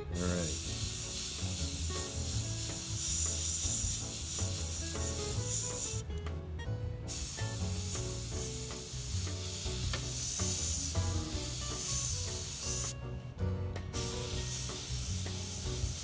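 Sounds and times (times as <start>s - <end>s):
background music: 0.0s - 16.0s
airbrush hiss: 0.1s - 6.0s, 7.1s - 13.0s, 14.0s - 16.0s.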